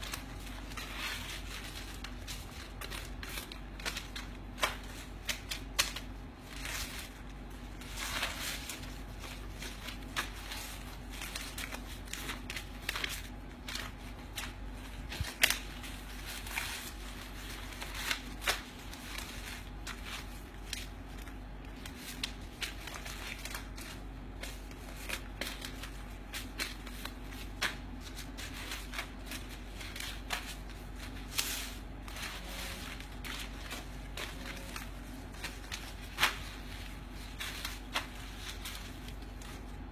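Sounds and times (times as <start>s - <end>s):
faint steady hum: 0.0s - 39.9s
paper banknotes rustling: 0.0s - 39.9s.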